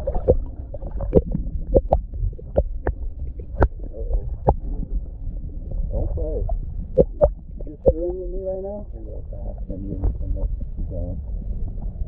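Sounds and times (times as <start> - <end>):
sharp underwater clicks and knocks: 0.0 - 5.1, 6.5 - 8.2
muffled underwater rumble: 0.0 - 12.0.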